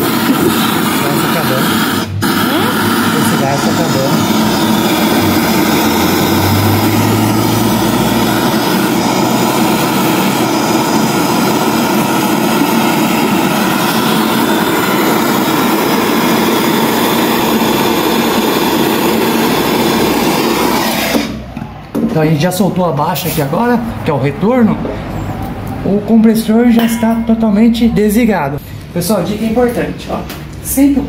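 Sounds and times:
gas torch flame rushing: 0:00.0 - 0:21.5.

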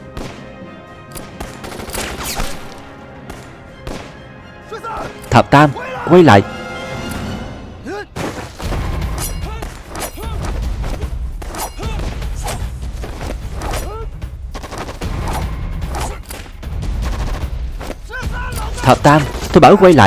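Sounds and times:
rifle and machine-gun fire: 0:16.8 - 0:17.6.

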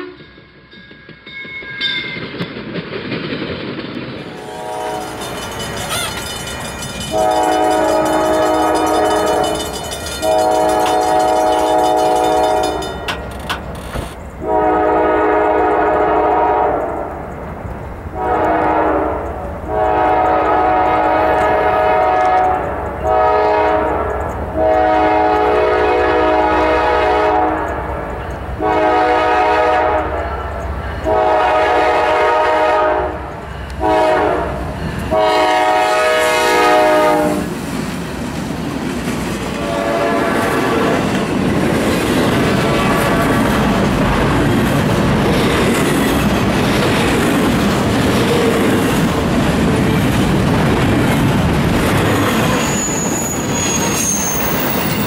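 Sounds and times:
locomotive air horn blasts: 0:00.0 - 0:00.2, 0:04.4 - 0:06.3, 0:07.1 - 0:12.8, 0:14.4 - 0:17.0, 0:18.2 - 0:27.7, 0:28.6 - 0:30.4, 0:31.0 - 0:37.5, 0:39.6 - 0:41.0, 0:42.6 - 0:43.5
locomotive engine rumble: 0:02.2 - 0:26.8.

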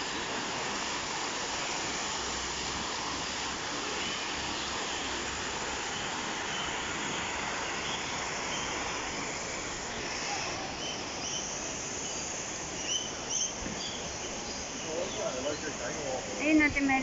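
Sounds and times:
water rushing over rocks: 0:00.0 - 0:16.9
bird chirps: 0:12.8 - 0:15.7.

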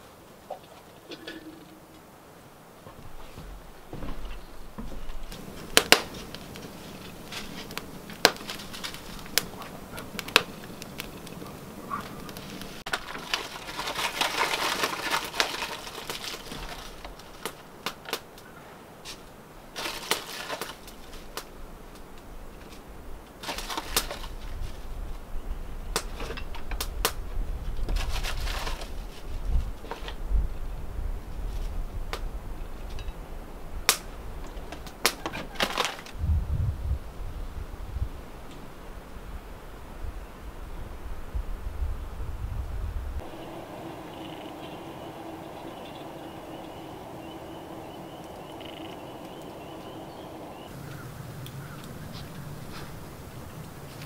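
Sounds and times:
coffee bag crinkling: 0:05.4 - 0:17.6, 0:19.8 - 0:21.3, 0:27.9 - 0:29.2.

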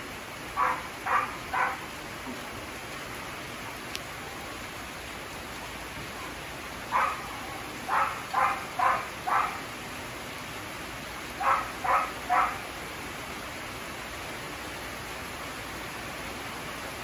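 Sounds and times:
heavy rain hissing: 0:00.0 - 0:17.0
dog barking: 0:00.6 - 0:01.8, 0:06.9 - 0:09.6, 0:11.4 - 0:12.6.

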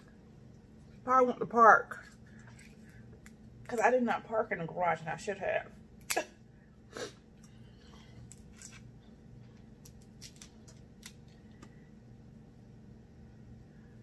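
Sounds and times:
faint low hum: 0:00.0 - 0:14.0
fingers peeling seafood shell: 0:09.6 - 0:11.7.

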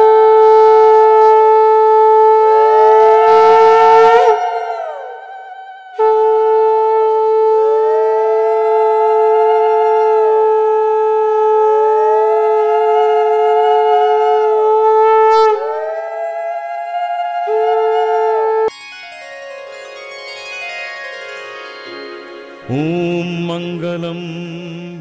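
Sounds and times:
conch shells blowing: 0:00.0 - 0:18.8.

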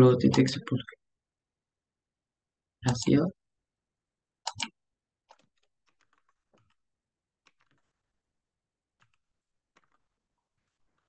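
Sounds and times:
keyboard typing: 0:04.4 - 0:06.8, 0:07.4 - 0:08.1, 0:09.0 - 0:11.0
sharp clicks: 0:04.4 - 0:06.8.

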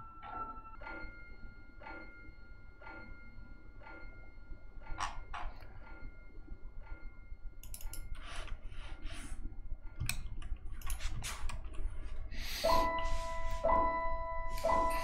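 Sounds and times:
computer keyboard clicks: 0:07.6 - 0:08.1
two-note electronic chime: 0:12.6 - 0:15.0.

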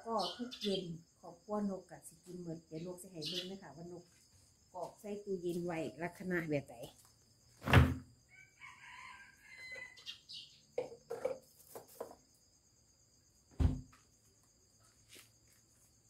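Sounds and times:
loud thump: 0:07.6 - 0:08.0, 0:13.5 - 0:13.9
rooster crowing: 0:08.3 - 0:10.1.

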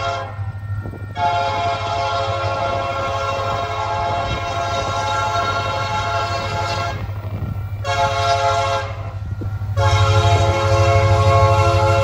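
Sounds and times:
locomotive air horn blasts: 0:00.0 - 0:12.0.

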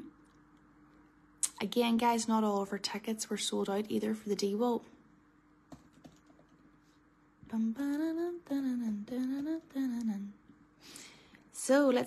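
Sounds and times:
laptop keys clicking: 0:05.7 - 0:06.6
person humming: 0:07.5 - 0:10.4.

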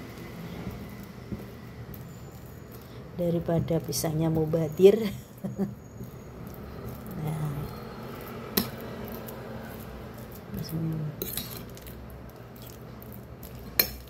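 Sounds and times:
fork tines clinking on plate: 0:11.1 - 0:12.0.

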